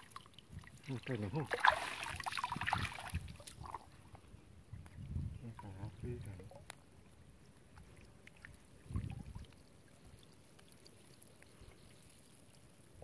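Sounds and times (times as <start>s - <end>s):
water pouring and trickling: 0.0s - 4.2s, 7.6s - 13.0s
small ticks: 9.4s - 12.7s.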